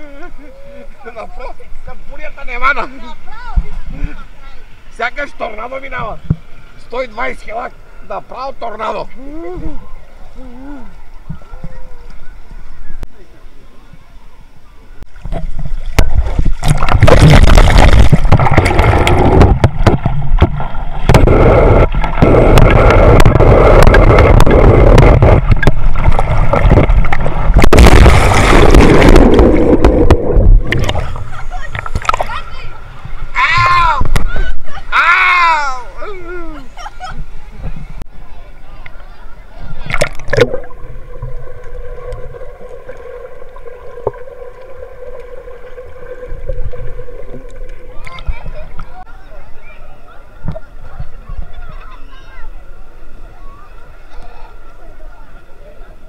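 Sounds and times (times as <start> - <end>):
water rushing and splashing: 14.4 - 56.0
deep rumble: 15.9 - 32.3, 39.7 - 49.1
steady hum: 38.8 - 51.8.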